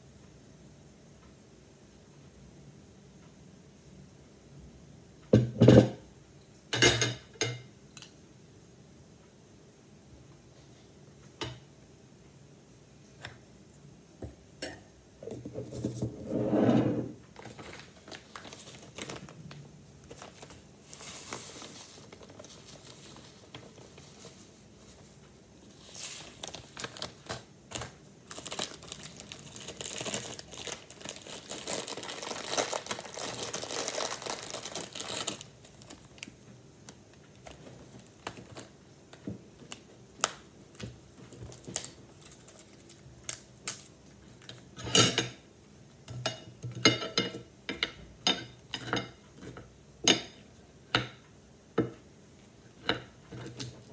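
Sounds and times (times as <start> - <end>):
plastic packaging crinkling: 17.4 - 25.1, 25.8 - 44.7.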